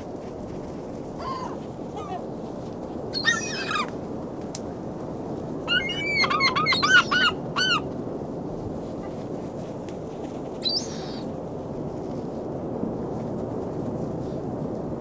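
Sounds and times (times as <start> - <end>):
gulls calling: 3.2 - 3.9, 5.7 - 7.9.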